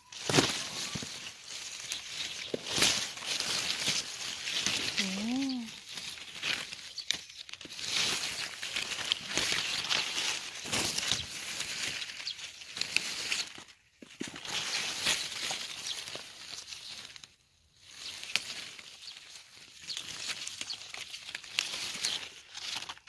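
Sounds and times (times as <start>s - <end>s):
leaves and stems rustling: 0.0s - 23.0s.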